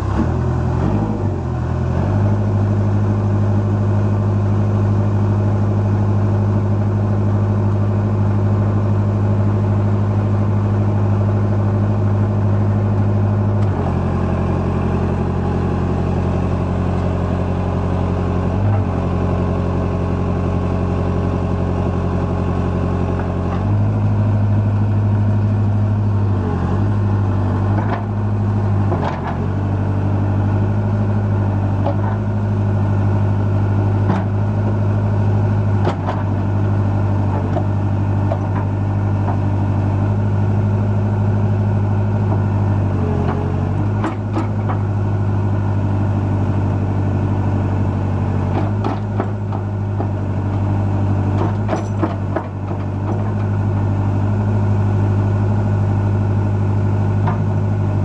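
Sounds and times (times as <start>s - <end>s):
backhoe diesel engine running: 0.0s - 58.0s.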